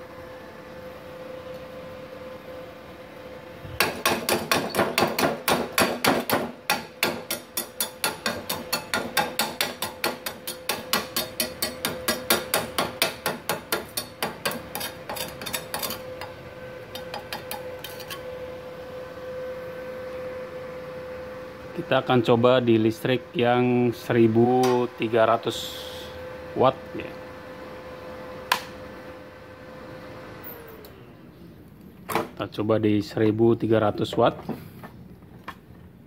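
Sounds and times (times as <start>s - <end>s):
hammer striking steel plates: 3.8s - 16.0s.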